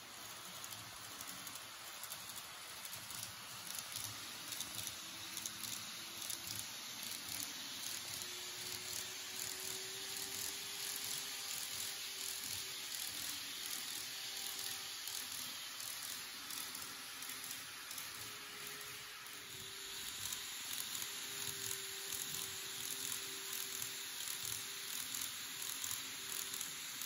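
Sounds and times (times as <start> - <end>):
faint motor whine: 0.0 - 27.0.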